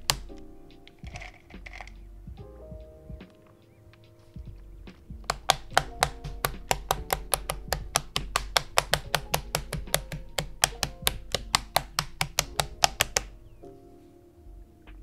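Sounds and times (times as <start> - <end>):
keyboard switches clicking into plate: 5.2 - 13.3.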